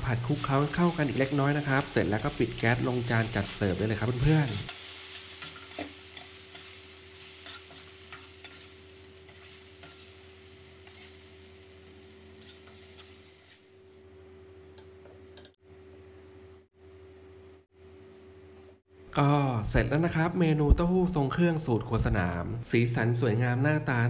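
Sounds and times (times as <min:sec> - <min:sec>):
stir-fry sizzling in a wok: 0:00.0 - 0:14.0.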